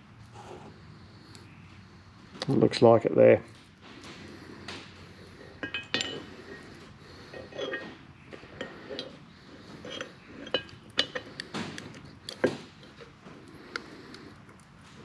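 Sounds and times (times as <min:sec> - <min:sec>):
metal parts clinking: 0:05.6 - 0:06.6, 0:07.3 - 0:13.1.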